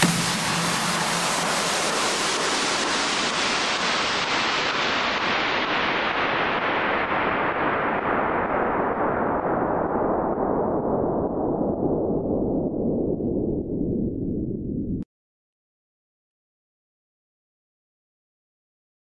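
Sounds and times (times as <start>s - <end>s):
electronic dance music backing: 0.0s - 1.2s
falling filter-sweep noise: 0.0s - 15.0s.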